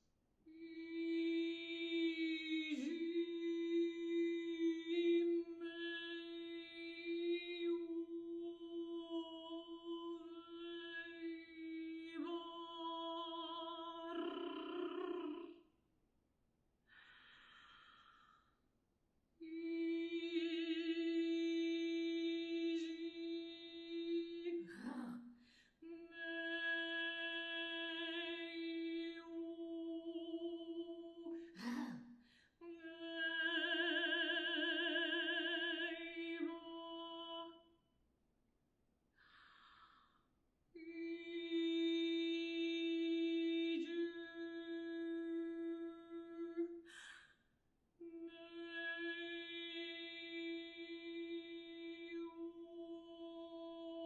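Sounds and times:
woman singing a long note: 0.6 - 15.6, 19.4 - 25.2, 25.8 - 32.0, 32.6 - 37.6, 40.8 - 46.7, 48.0 - 54.0
faint airy breath: 16.9 - 18.6, 39.2 - 40.3, 46.8 - 47.6.

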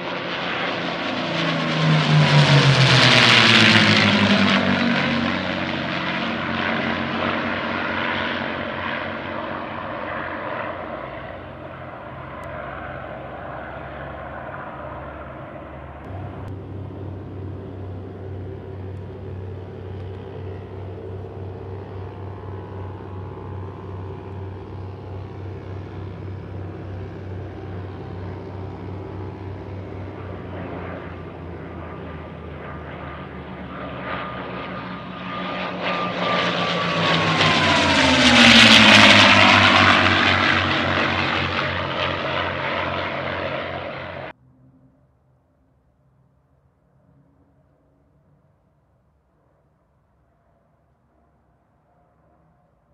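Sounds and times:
propeller plane engines droning: 0.0 - 52.9.

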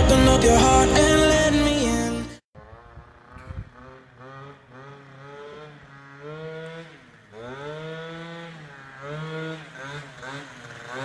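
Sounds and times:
scooter engine revving: 0.0 - 11.0.

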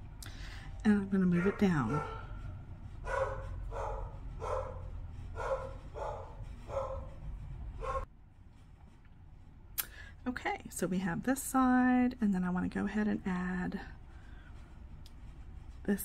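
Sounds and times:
dog barking: 1.3 - 2.4, 3.1 - 7.1, 7.8 - 8.0.

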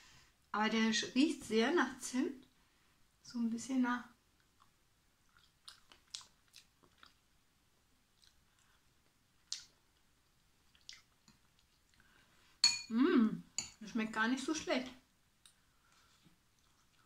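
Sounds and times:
faint chewing: 4.3 - 12.5, 15.4 - 17.0.

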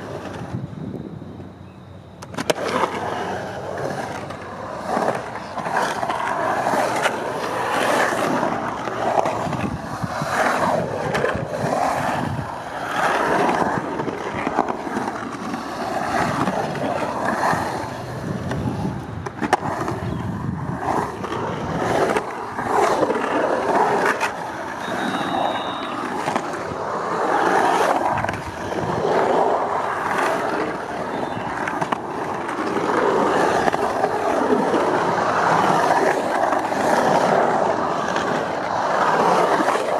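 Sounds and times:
skateboard wheels rolling on concrete: 0.0 - 39.9
skateboard knocks: 2.2 - 3.0, 16.2 - 39.9.

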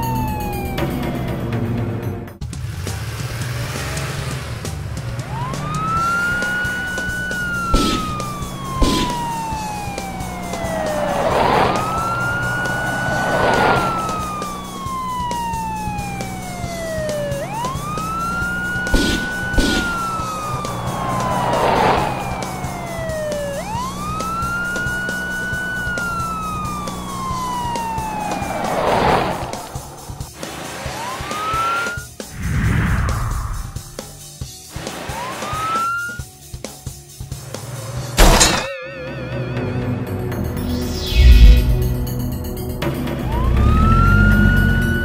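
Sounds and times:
police siren wailing: 0.0 - 1.8, 5.0 - 32.2, 34.8 - 36.3, 38.2 - 45.0
whooshing swells: 10.5 - 14.6, 28.2 - 31.1, 32.3 - 34.2, 40.7 - 42.4.

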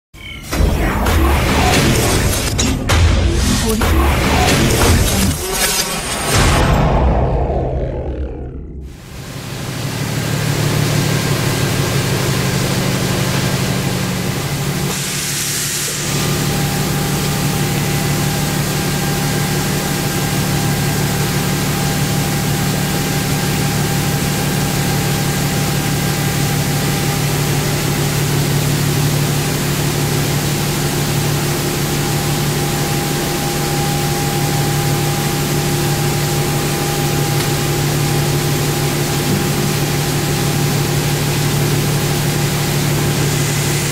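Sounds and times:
machine hum and hiss: 0.2 - 43.9
burst of hiss: 14.9 - 16.3.

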